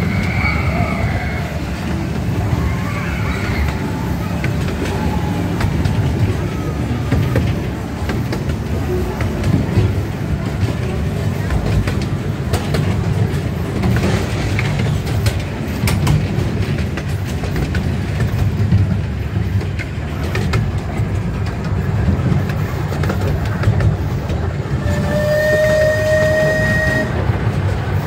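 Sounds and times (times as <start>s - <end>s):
small train rumbling on track: 0.0s - 28.0s
wheels clicking: 0.0s - 28.0s
train horn toot: 24.8s - 27.3s.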